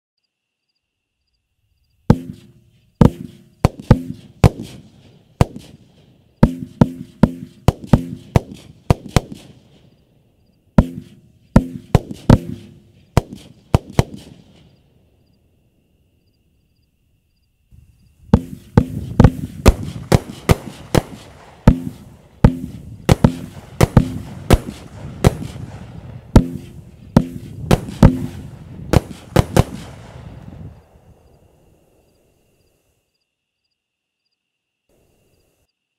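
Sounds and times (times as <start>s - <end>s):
fireworks bangs: 2.1s - 10.0s, 10.8s - 14.8s, 17.7s - 31.7s
fireworks crackling: 2.1s - 10.0s, 10.8s - 14.8s, 17.8s - 31.2s.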